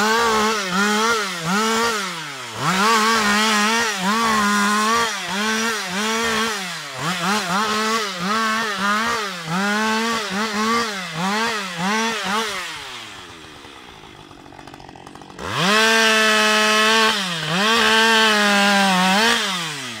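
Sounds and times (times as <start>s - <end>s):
chainsaw revving and bogging: 0.0s - 20.0s.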